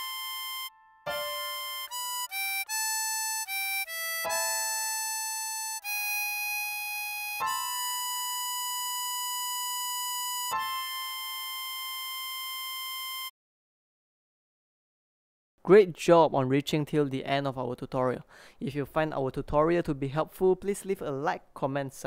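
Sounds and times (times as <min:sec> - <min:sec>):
harmonica melody: 0:00.0 - 0:13.3.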